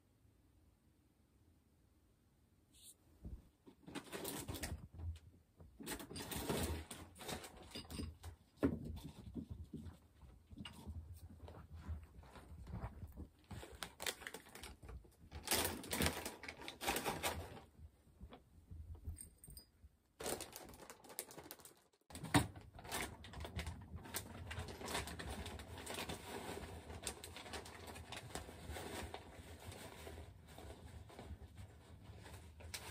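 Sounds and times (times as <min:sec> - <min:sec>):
rabbit paws tapping on floor: 0:08.4 - 0:17.5.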